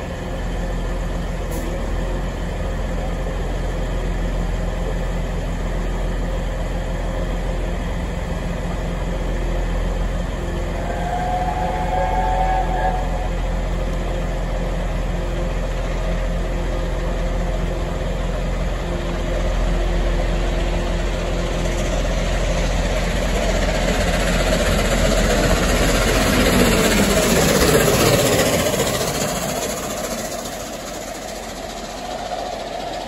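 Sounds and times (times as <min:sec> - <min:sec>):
coaches rumbling on rails: 0:00.0 - 0:33.0
diesel train idling: 0:00.0 - 0:33.0
steam locomotive passing at speed: 0:10.3 - 0:15.6, 0:20.6 - 0:33.0.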